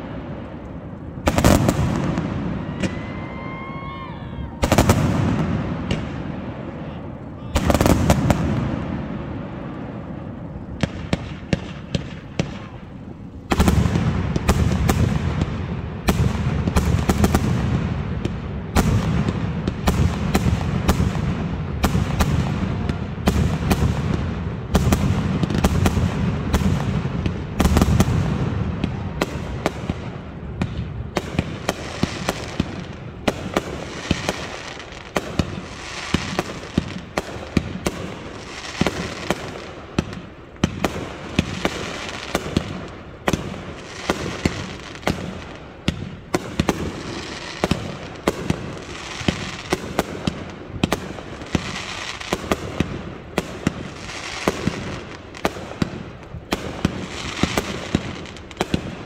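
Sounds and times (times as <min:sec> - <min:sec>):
deep firework booms: 0:00.0 - 0:03.9, 0:04.6 - 0:06.8, 0:07.5 - 0:59.0
firework bangs: 0:00.0 - 0:59.0
firework crackling: 0:00.0 - 0:59.0.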